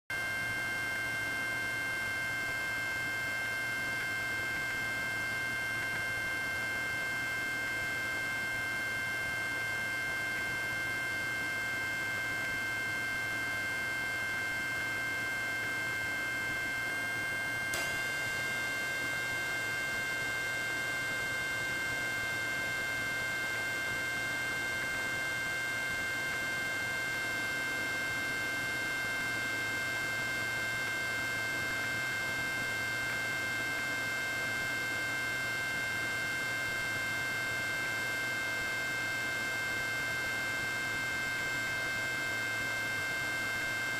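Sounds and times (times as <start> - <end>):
electronic hum and whine: 0.1 - 43.9
short click: 17.7 - 18.6.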